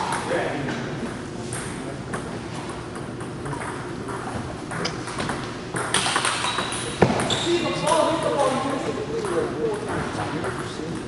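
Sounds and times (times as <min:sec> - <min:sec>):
table tennis ball pinging: 0:03.0 - 0:10.7.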